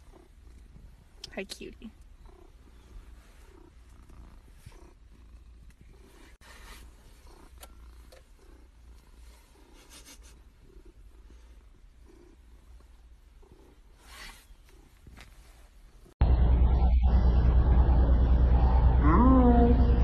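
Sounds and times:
cat purring: 0:00.0 - 0:16.2
fur rustling against phone: 0:14.0 - 0:16.0.

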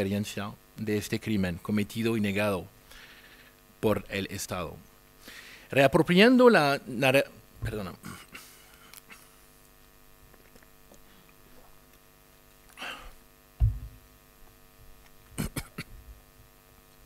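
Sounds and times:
electrical mains hum: 0:00.0 - 0:17.0
low thump: 0:13.6 - 0:14.0.

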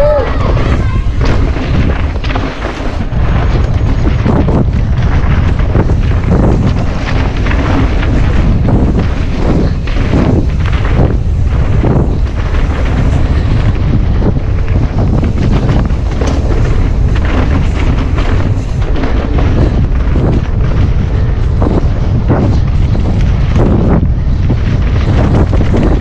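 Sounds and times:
bike rattling over bumps: 0:00.0 - 0:26.0
tyres crunching over dirt: 0:00.0 - 0:26.0
wind buffeting microphone: 0:00.0 - 0:26.0.

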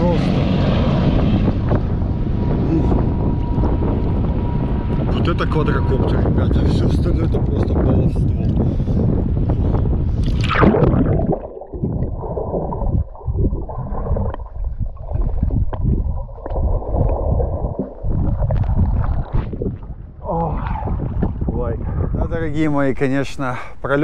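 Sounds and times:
splash into water: 0:10.2 - 0:13.1
muffled underwater gurgling: 0:10.3 - 0:22.5.

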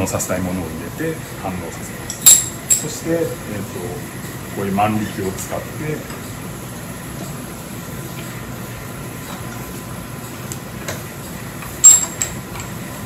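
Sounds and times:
ventilation hum: 0:00.0 - 0:13.0
sharp metallic clink: 0:02.1 - 0:02.9, 0:11.8 - 0:12.3.

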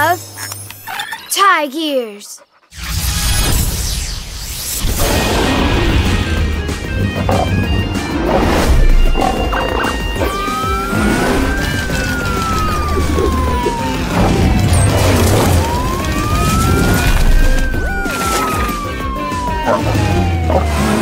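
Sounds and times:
upbeat music with heavy bass: 0:06.1 - 0:11.2
wailing siren: 0:07.7 - 0:21.0.

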